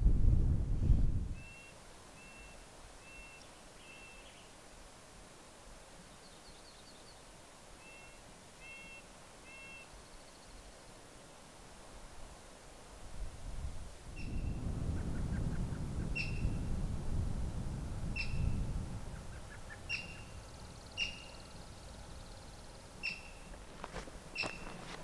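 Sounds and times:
wind rumble on microphone: 0.0 - 1.6, 13.0 - 25.0
small animal calling: 24.4 - 24.9.

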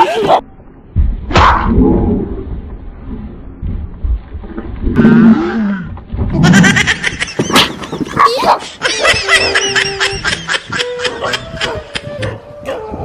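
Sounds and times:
low roar: 4.8 - 6.4
animal growling: 4.9 - 6.0.

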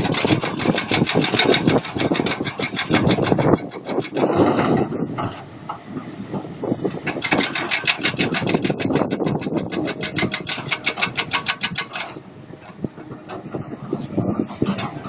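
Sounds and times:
rapid even clicking: 0.0 - 4.4, 7.0 - 12.2
excavator diesel engine running: 0.0 - 15.0.

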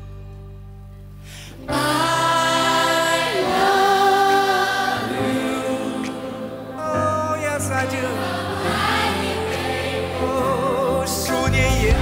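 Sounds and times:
soft held chord: 0.0 - 12.0
group of voices singing: 1.7 - 12.0
band playing pop music: 6.8 - 12.0.

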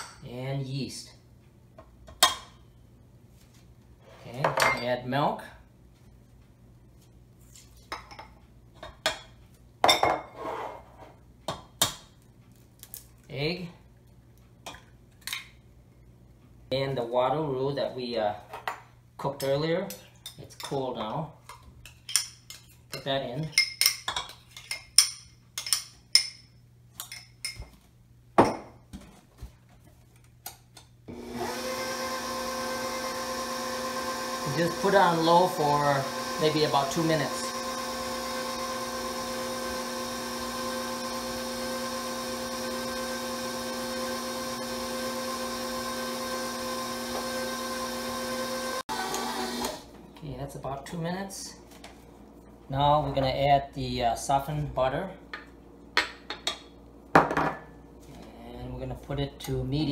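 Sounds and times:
stand mixer motor running: 31.1 - 49.8
utensil scraping mixing bowl: 32.5 - 41.2.

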